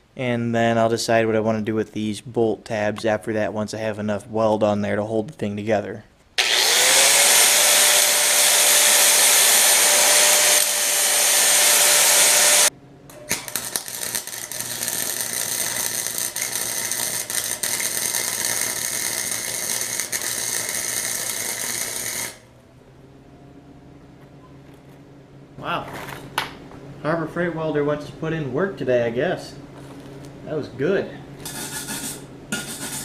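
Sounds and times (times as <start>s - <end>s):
angle grinder whining: 6.4s - 22.5s
welder crackling and popping: 6.4s - 22.5s.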